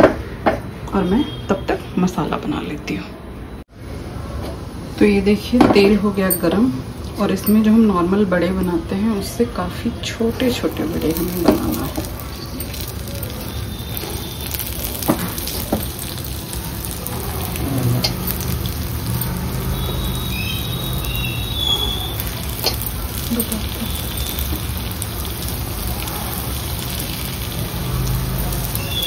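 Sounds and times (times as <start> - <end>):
food sizzling in hot oil: 10.0 - 29.0.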